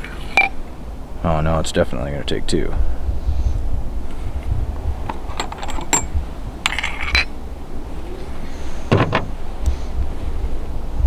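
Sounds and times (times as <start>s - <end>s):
scraping rattle: 5.1s - 7.4s.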